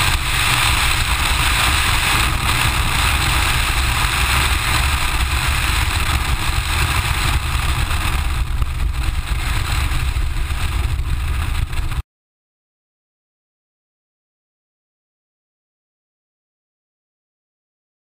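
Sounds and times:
car engine running: 0:00.0 - 0:12.0
wind rush: 0:00.0 - 0:12.0.

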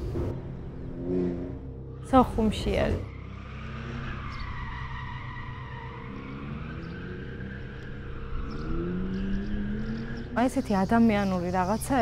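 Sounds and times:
car engine running: 0:00.0 - 0:04.4.

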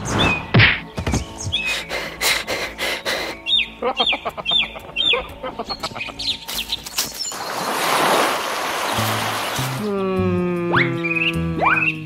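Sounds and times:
rushing whoosh of water: 0:07.3 - 0:09.8.

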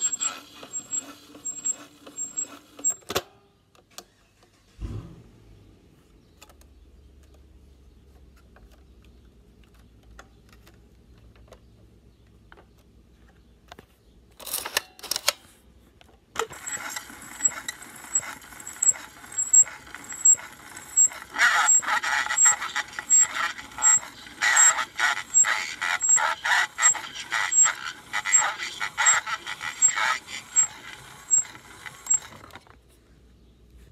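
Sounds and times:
regular ticking of turning disc: 0:16.5 - 0:32.5
tinny soundtrack from small speaker: 0:21.3 - 0:32.1.

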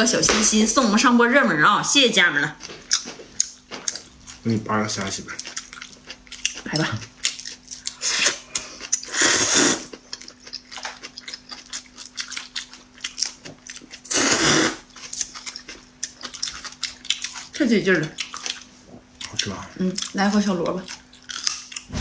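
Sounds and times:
close-up chewing: 0:02.6 - 0:21.9
noodles being slurped: 0:08.0 - 0:09.9, 0:14.1 - 0:14.8.

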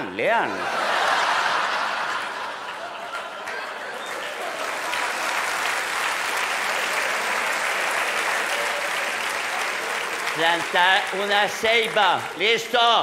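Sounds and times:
audience applauding: 0:00.8 - 0:13.0.

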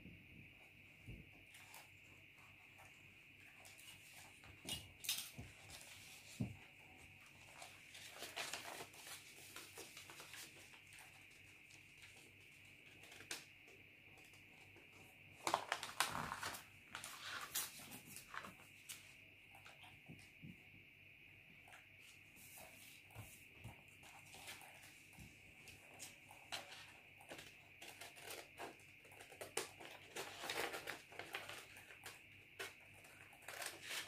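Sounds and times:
faint high-pitched hiss: 0:00.0 - 0:34.0
paper rustling: 0:07.3 - 0:13.5, 0:15.4 - 0:19.1.

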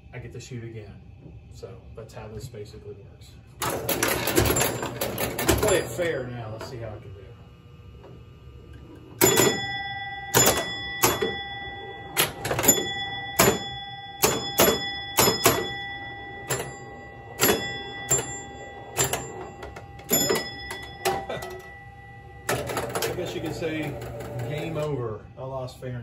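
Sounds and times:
pinball machine clacks: 0:03.6 - 0:06.8, 0:08.7 - 0:25.0
pinball machine rattling: 0:03.6 - 0:06.9, 0:08.7 - 0:25.0
ringing bell tone: 0:04.2 - 0:06.2, 0:09.2 - 0:25.0.

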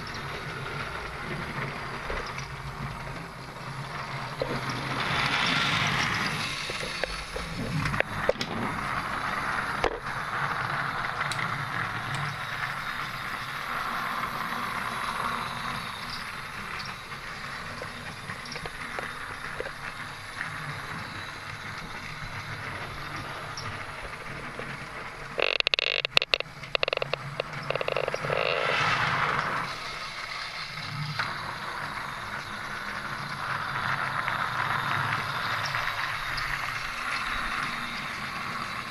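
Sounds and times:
sharp clicks and clattering: 0:00.0 - 0:29.8
wooden wheels rattling on plastic track: 0:00.0 - 0:38.9.

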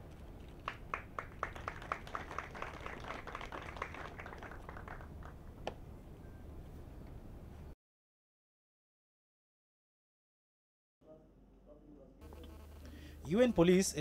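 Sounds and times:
people clapping: 0:00.6 - 0:05.4.

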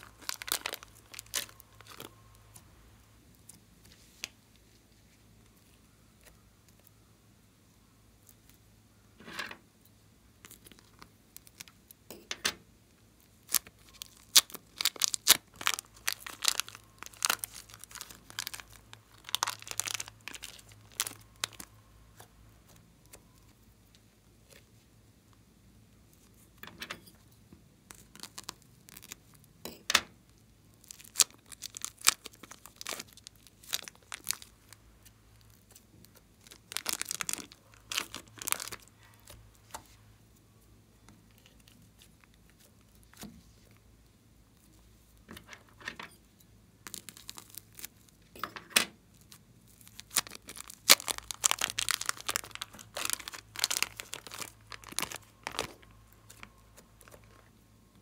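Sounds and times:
plastic bags crinkling: 0:00.0 - 0:02.2, 0:13.4 - 0:22.3, 0:27.9 - 0:29.4, 0:30.8 - 0:39.9, 0:46.8 - 0:48.3, 0:49.1 - 0:57.5.

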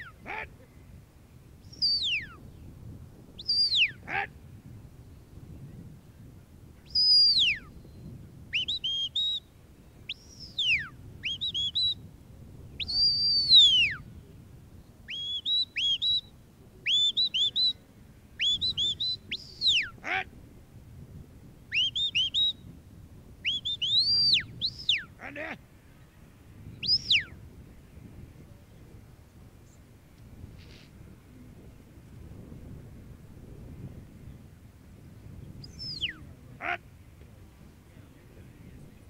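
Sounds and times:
shepherd's whistle notes: 0:01.6 - 0:02.4, 0:03.4 - 0:04.0, 0:06.9 - 0:07.7, 0:08.5 - 0:09.5, 0:10.1 - 0:12.0, 0:12.8 - 0:14.0, 0:15.1 - 0:16.3, 0:16.9 - 0:17.8, 0:18.4 - 0:20.0, 0:21.7 - 0:22.6, 0:23.4 - 0:25.1, 0:26.8 - 0:27.4, 0:35.6 - 0:36.2.

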